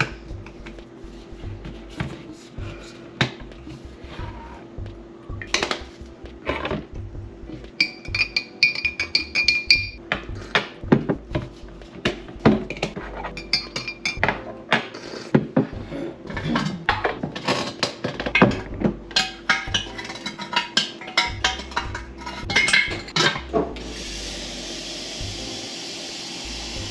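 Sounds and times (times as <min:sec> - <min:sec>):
background music: 0:00.0 - 0:26.9
spoon clinking against glass: 0:07.8 - 0:10.0.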